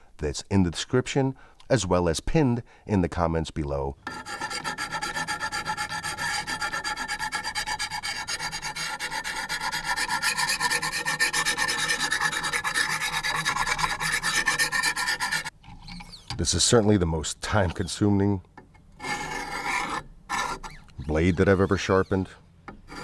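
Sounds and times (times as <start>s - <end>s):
sharpening stone rasping on steel: 4.1s - 16.3s, 19.0s - 23.0s.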